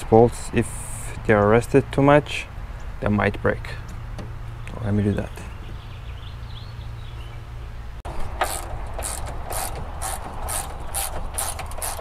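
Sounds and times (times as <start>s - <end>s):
ratchet wrench clicking: 8.4s - 12.0s.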